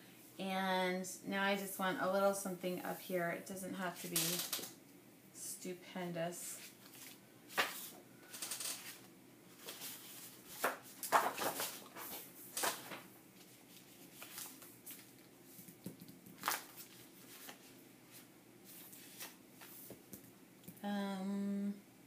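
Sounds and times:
paper rustling and sliding: 8.7s - 15.7s, 16.4s - 20.0s.

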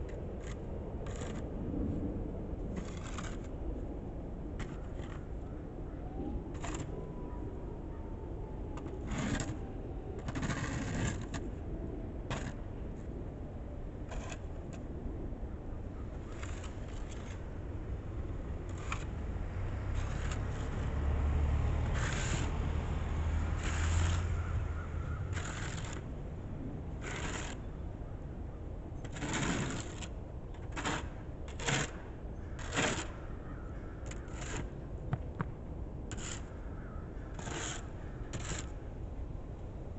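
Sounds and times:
snow shovel scraping pavement: 2.8s - 3.5s, 10.2s - 11.4s, 12.3s - 12.6s, 19.9s - 21.0s, 21.8s - 22.6s, 23.5s - 24.3s, 25.4s - 26.0s, 27.0s - 27.6s, 29.1s - 32.0s, 36.1s - 36.5s, 37.4s - 38.7s.

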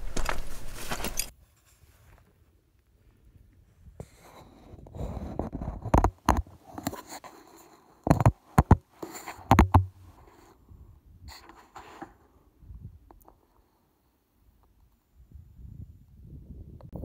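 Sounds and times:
sharp knocks and clicks: 8.1s - 8.8s, 9.4s - 10.0s.

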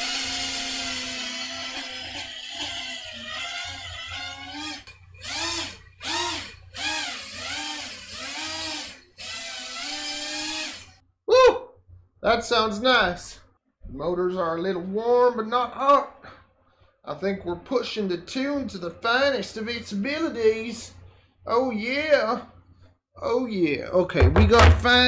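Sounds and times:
quadcopter motors whining: 0.0s - 11.0s.

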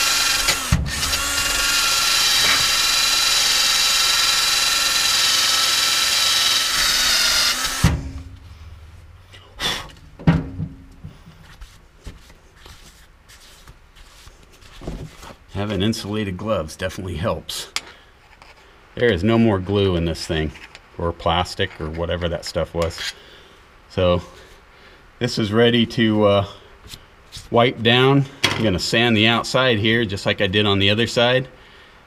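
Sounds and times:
drill spinning wire wheel: 0.0s - 8.1s.

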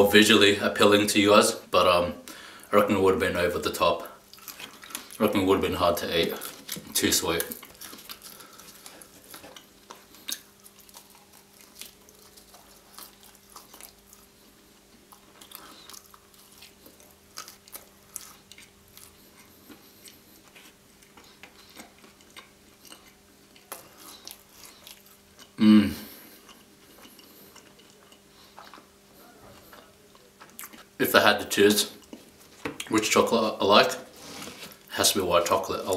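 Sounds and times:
wet chewing and mouth clicks: 4.3s - 5.2s, 6.4s - 25.6s, 26.3s - 31.0s.

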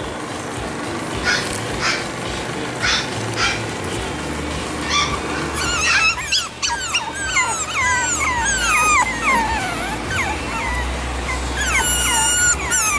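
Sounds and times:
puppies whining and yipping: 4.8s - 12.9s.

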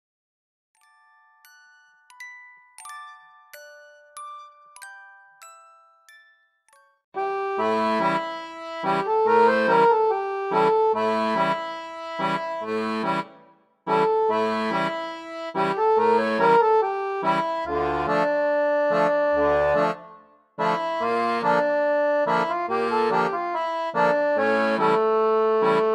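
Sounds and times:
accordion music: 7.2s - 25.9s.

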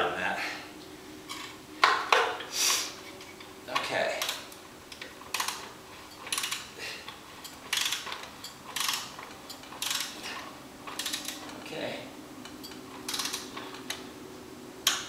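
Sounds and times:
ratcheting wrench clicking: 3.8s - 11.6s, 12.4s - 14.0s.

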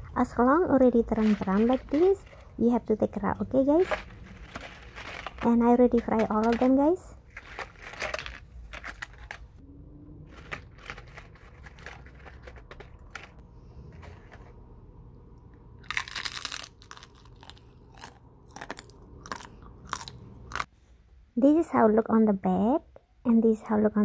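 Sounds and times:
crackers crackling: 0.8s - 2.6s, 3.5s - 9.6s, 10.3s - 13.4s, 15.8s - 20.7s.

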